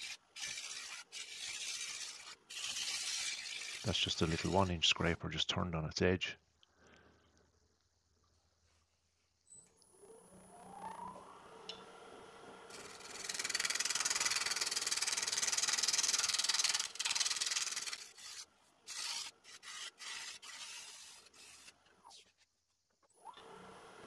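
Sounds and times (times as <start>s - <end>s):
scraper on spinning wood: 0.0s - 5.2s, 12.7s - 22.5s.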